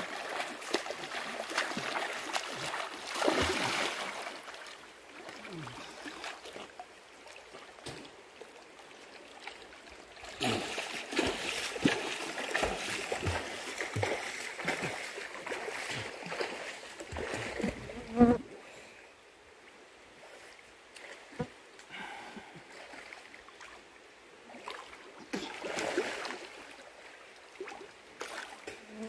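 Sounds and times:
water splashing in pool: 0:00.0 - 0:08.1, 0:09.3 - 0:18.1, 0:24.5 - 0:26.8.

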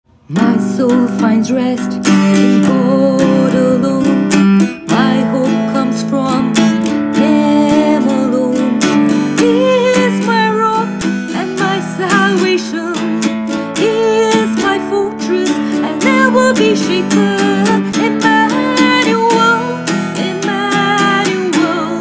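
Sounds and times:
person singing slow melody: 0:00.1 - 0:22.0
strummed acoustic guitar: 0:00.2 - 0:22.0.

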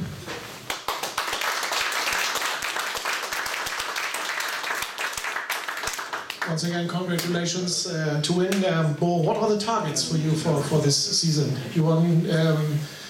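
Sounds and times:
audience applauding: 0:00.7 - 0:07.3.

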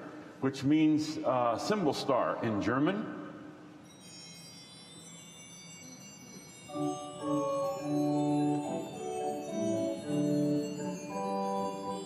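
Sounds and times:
soft tinkling bells: 0:03.7 - 0:12.0
pipe organ chords: 0:06.7 - 0:12.0.

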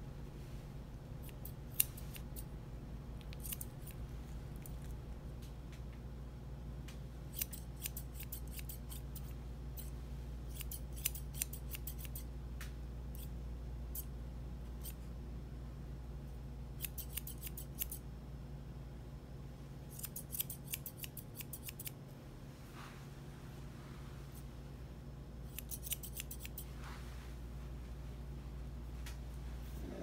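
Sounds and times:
steady low hum: 0:00.0 - 0:30.0
grooming shears snipping fur: 0:01.2 - 0:02.5, 0:03.2 - 0:05.0, 0:07.3 - 0:12.3, 0:16.8 - 0:18.0, 0:19.9 - 0:22.0, 0:25.5 - 0:27.0.

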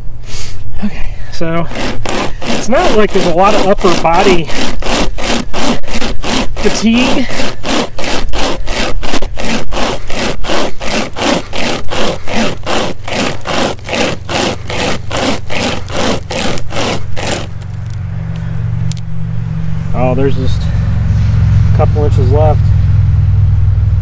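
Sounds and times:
chain saw rasping through log: 0:01.3 - 0:18.0.

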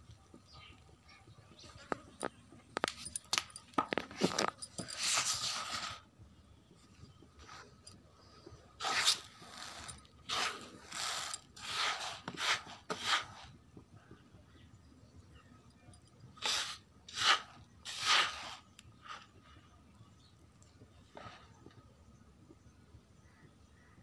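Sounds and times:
dry grain scraping on plastic tray: 0:08.8 - 0:13.5, 0:16.4 - 0:19.4.

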